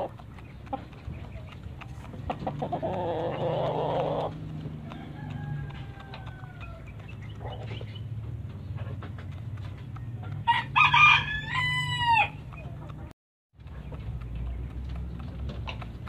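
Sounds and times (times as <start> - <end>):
rooster pecking grain from bowl: 0.0 - 16.0
rooster crowing: 3.8 - 6.9, 10.4 - 12.4.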